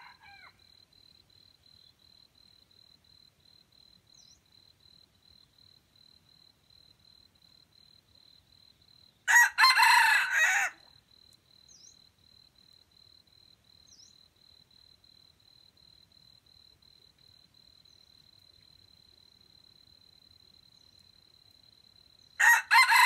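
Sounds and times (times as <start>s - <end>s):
rooster crowing: 0.0s - 0.6s, 9.3s - 10.9s, 22.4s - 23.0s
cricket pulsing chirp: 0.0s - 9.5s, 10.9s - 23.0s
faint bird chirps: 4.0s - 4.8s, 11.6s - 12.1s, 13.8s - 14.3s, 20.6s - 21.3s.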